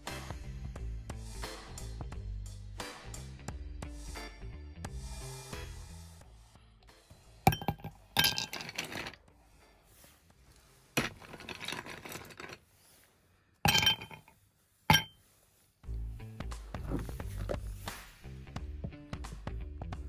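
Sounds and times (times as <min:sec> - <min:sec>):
ice cubes clinking in glass: 0:07.5 - 0:09.0, 0:13.7 - 0:14.2.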